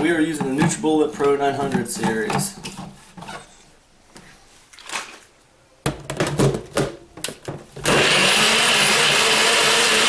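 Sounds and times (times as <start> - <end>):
blender motor running: 7.8 - 10.0.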